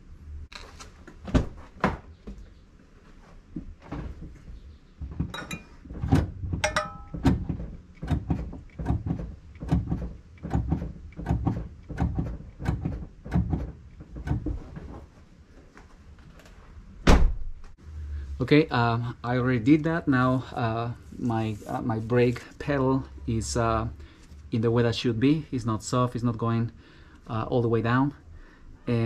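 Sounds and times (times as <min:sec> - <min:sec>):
brake pedal knocking: 0:05.0 - 0:14.7.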